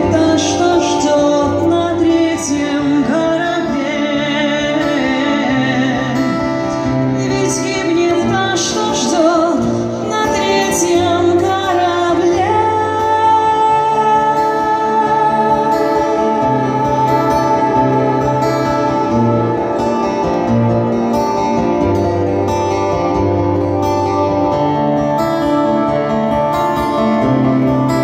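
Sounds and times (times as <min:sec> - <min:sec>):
woman singing: 0:00.0 - 0:20.8
acoustic guitar: 0:00.0 - 0:28.0.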